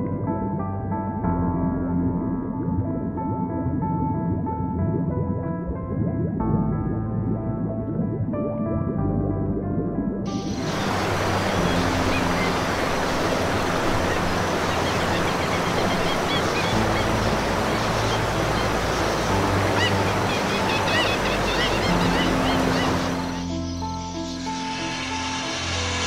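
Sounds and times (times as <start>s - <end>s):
soft background music: 0.0s - 26.0s
rushing water: 10.3s - 23.6s
high bird calls: 10.6s - 24.1s.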